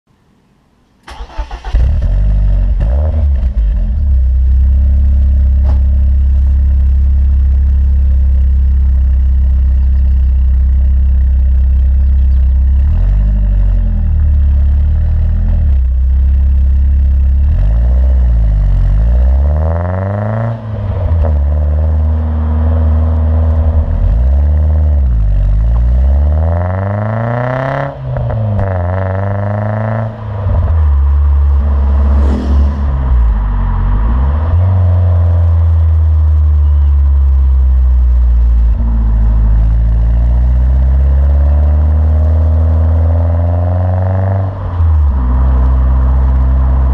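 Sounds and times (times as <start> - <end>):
car engine revving: 1.1 - 46.9.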